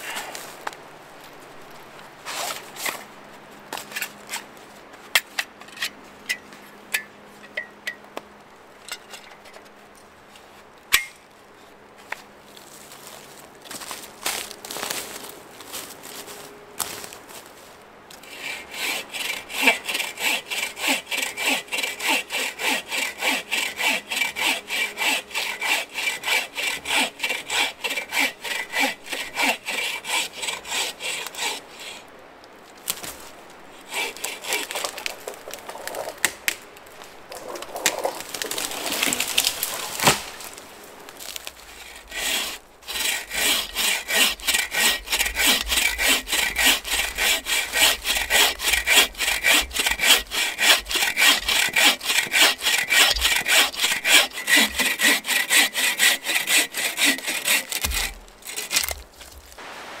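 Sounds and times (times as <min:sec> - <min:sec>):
bow saw cutting wood: 0:18.2 - 0:32.0, 0:33.8 - 0:36.1, 0:37.3 - 0:40.6, 0:41.2 - 0:59.6.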